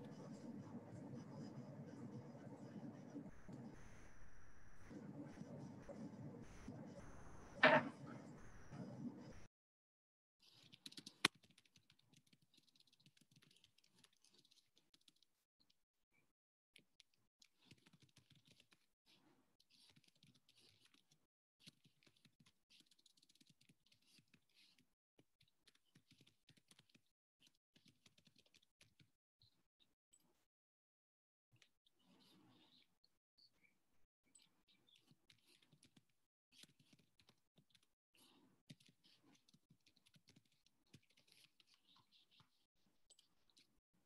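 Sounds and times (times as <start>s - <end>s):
typing on keyboard: 10.7s - 15.2s.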